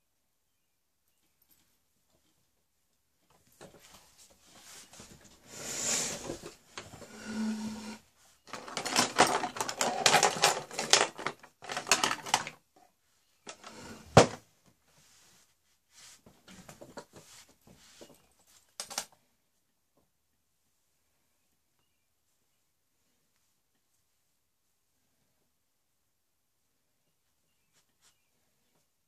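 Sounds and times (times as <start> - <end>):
small objects rattling: 7.1 - 12.6.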